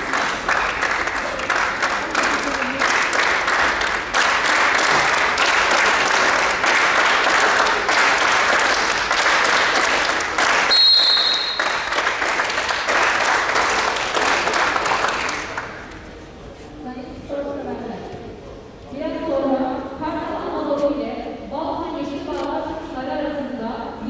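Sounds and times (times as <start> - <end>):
crowd applauding: 0.0 - 15.9.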